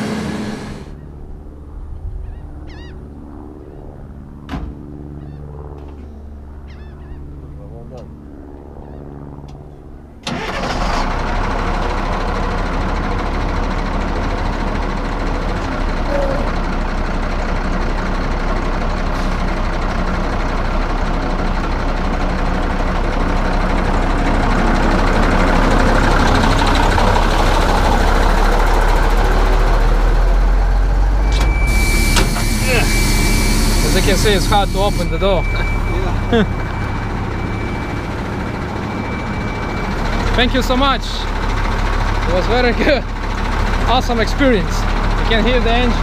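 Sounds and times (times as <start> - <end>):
diesel truck engine running: 0.0 - 1.0, 10.2 - 46.0.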